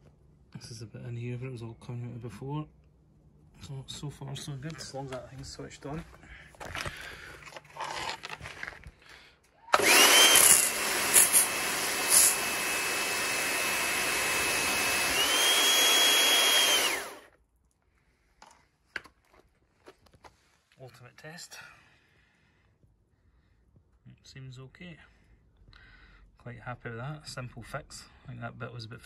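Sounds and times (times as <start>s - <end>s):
pressure washer motor whine: 9.7s - 17.3s.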